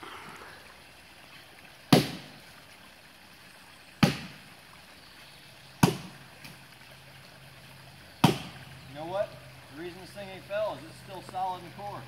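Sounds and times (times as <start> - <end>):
axe chopping into tree trunk: 1.9 - 2.3, 4.0 - 4.4, 5.8 - 6.2, 8.2 - 8.6.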